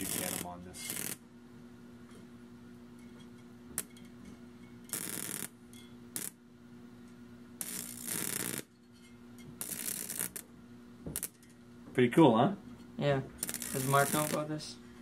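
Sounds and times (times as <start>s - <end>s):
high-voltage arcs crackling: 0.0s - 1.2s, 4.9s - 5.6s, 6.2s - 6.4s, 7.6s - 8.7s, 9.6s - 10.5s, 11.1s - 11.4s, 13.4s - 14.7s
steady electrical hum: 0.0s - 15.0s.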